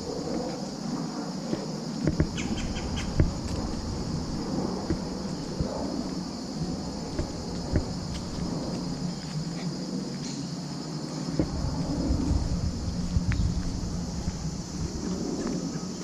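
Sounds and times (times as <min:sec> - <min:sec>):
insects chorus: 0:00.0 - 0:16.0
low rumble: 0:02.1 - 0:09.6, 0:11.3 - 0:15.7.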